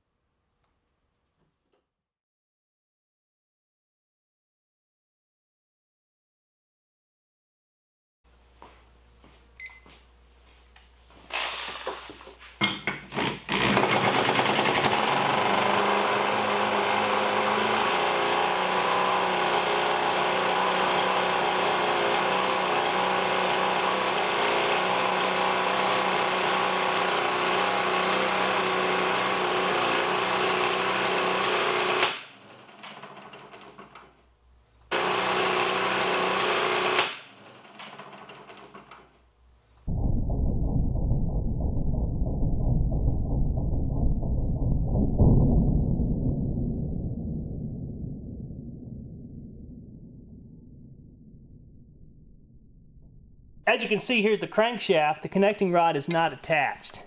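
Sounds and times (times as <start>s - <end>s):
small engine clattering: 13.5s - 34.2s, 34.9s - 39.2s.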